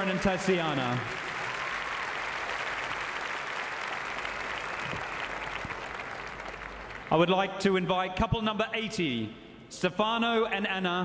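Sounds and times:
large audience applauding: 0.0 - 7.3.

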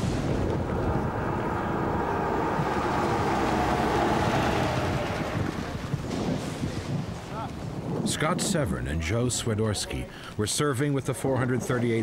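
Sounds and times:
rolling thunder rumble: 0.0 - 9.1.

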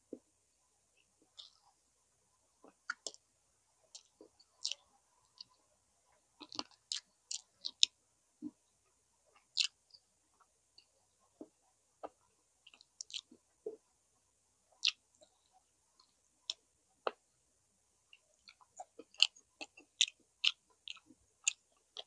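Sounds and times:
wet mouth clicks and lip smacks: 2.8 - 3.2, 6.4 - 7.9, 9.4 - 9.8, 12.0 - 13.3, 14.8 - 15.0.

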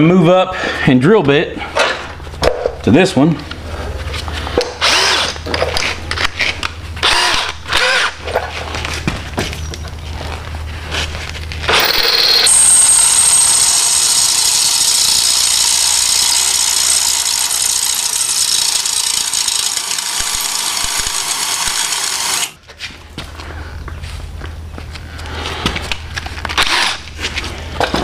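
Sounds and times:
drill boring through steel: 11.7 - 22.6.

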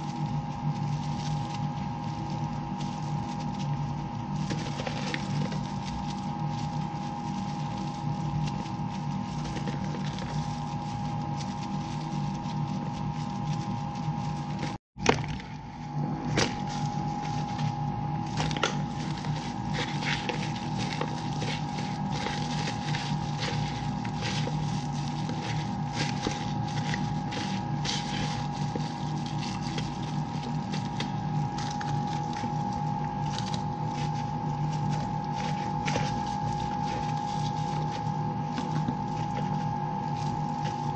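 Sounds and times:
chicken tossed in plastic bowl: 0.0 - 40.9
electrical hum with high tone: 0.0 - 40.9.

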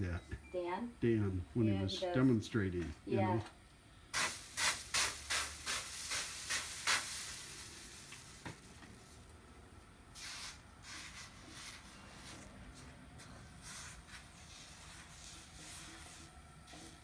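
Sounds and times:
rag wiping hot pan sizzling: 4.2 - 9.3, 10.2 - 12.8, 13.6 - 17.0.

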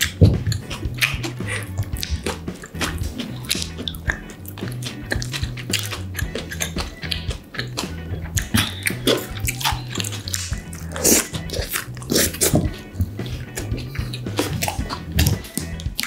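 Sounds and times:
background music with bass line: 0.0 - 16.0
wet chewing and lip smacking: 0.0 - 16.0.

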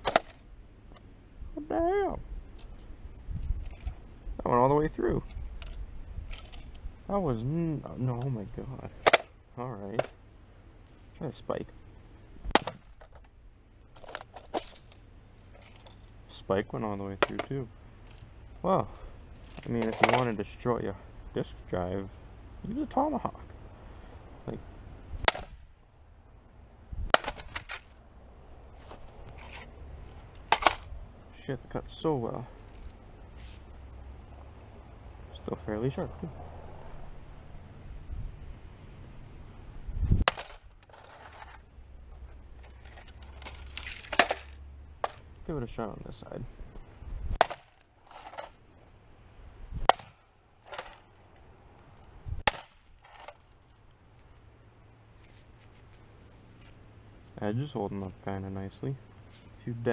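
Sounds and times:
tomahawk chopping sheet metal: 49.8 - 51.0.

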